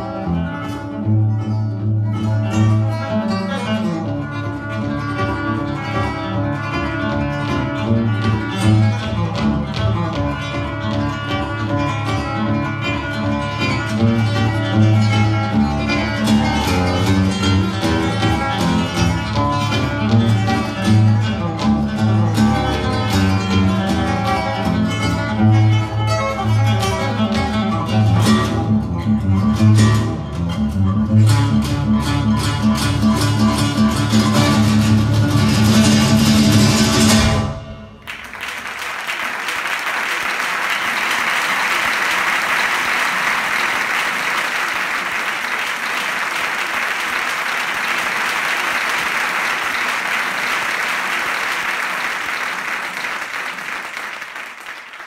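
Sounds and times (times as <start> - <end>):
classical guitar playing: 0.0 - 38.0
audience applause: 38.0 - 55.0.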